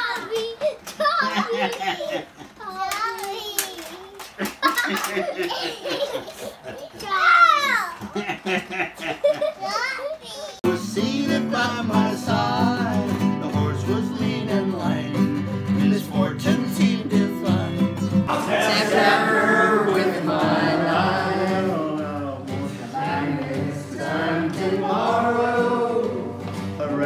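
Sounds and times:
man singing: 0:10.6 - 0:20.4, 0:21.0 - 0:27.0
acoustic guitar strumming: 0:10.6 - 0:27.0.

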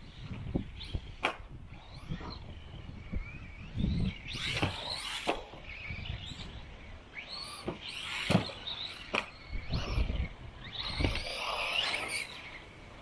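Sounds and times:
rc car motor whining: 0:00.0 - 0:13.0.

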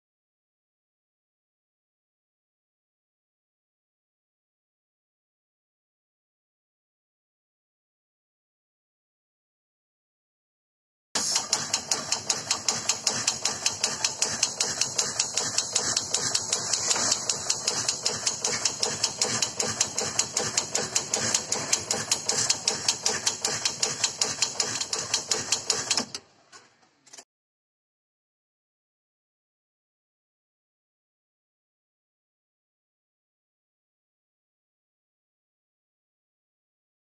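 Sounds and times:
pump fast clicking: 0:11.2 - 0:26.3.

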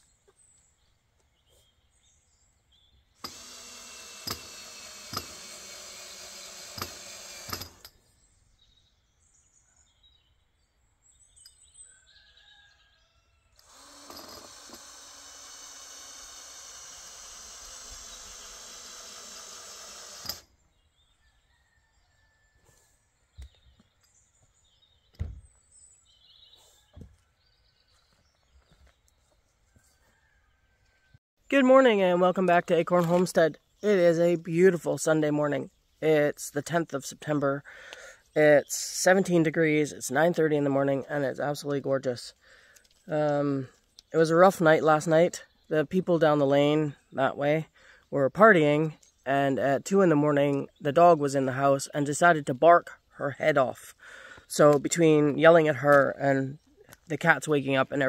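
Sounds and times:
cordless drill driving screws: 0:03.2 - 0:07.9, 0:13.6 - 0:20.5.

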